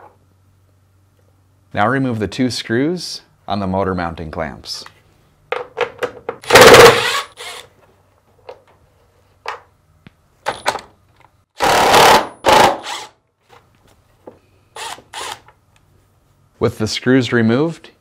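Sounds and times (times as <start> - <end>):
power driver running: 6.5 - 7.6.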